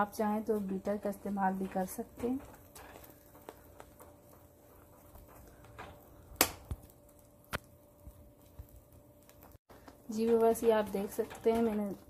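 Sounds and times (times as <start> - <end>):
spatula scraping a pan: 0.0 - 6.3.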